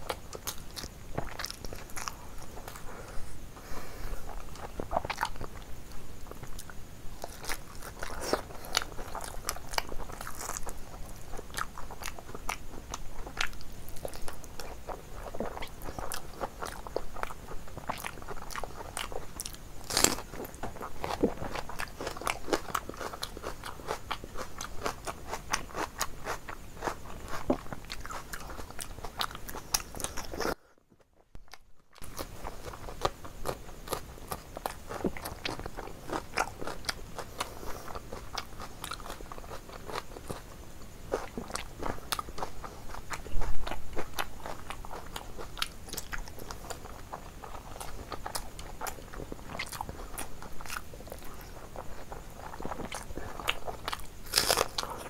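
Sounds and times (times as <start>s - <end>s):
person chewing crunchy food: 0.0s - 30.7s, 31.4s - 55.0s
crunch of biting raw onion: 47.8s - 55.0s.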